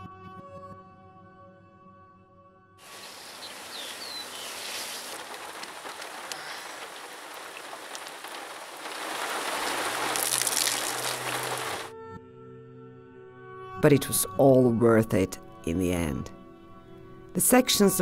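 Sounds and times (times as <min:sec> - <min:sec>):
rain falling: 0:02.8 - 0:11.9
drops ticking: 0:02.9 - 0:11.9.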